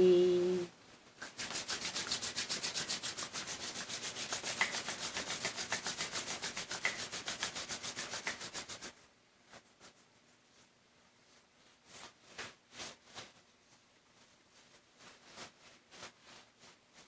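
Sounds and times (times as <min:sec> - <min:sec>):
palms rubbing together: 0:01.2 - 0:10.7.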